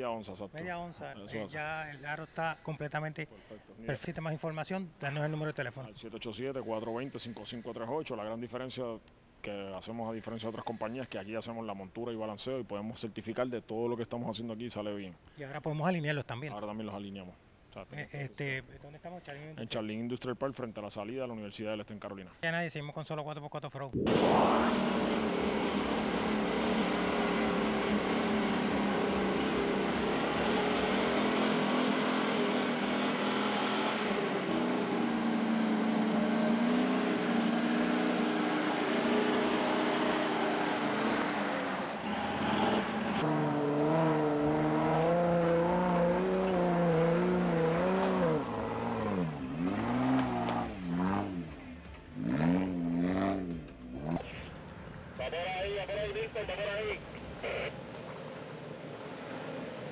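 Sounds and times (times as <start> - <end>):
vehicle engine running and revving: 24.1 - 55.5, 56.8 - 59.9.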